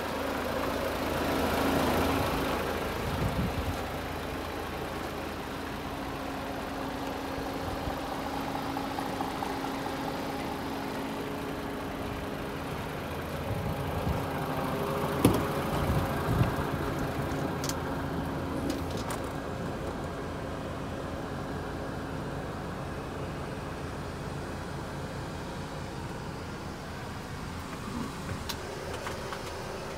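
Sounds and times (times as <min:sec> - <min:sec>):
diesel truck engine idling: 0:00.0 - 0:29.9
sharp knocks: 0:15.2 - 0:15.5.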